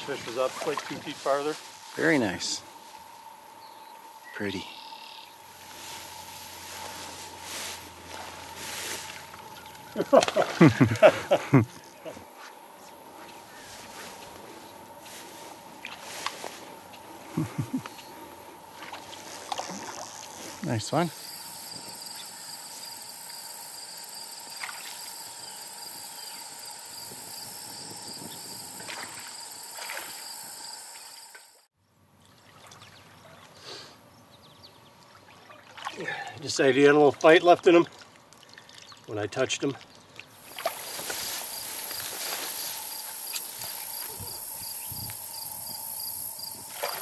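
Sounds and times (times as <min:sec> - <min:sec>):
thin steady tones: 0:00.0 - 0:31.7
insects chirring: 0:00.0 - 0:47.0.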